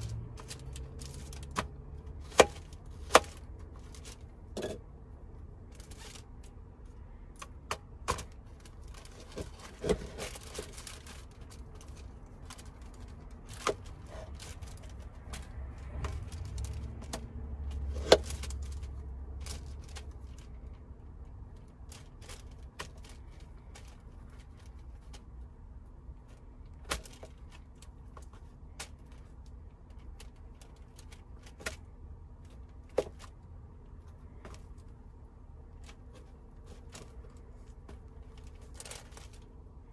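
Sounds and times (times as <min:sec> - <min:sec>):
things picked up and set down: 0:02.4 - 0:04.9.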